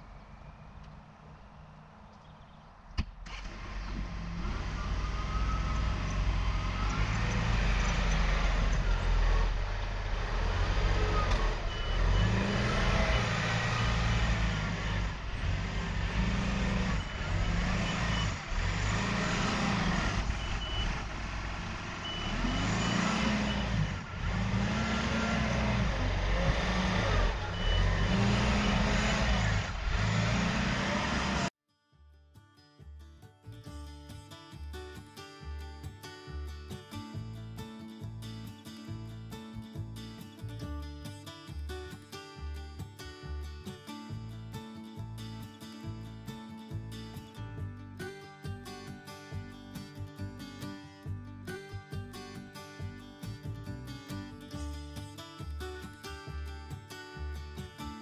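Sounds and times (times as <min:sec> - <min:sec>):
tractor diesel engine revving: 0:03.2 - 0:31.5.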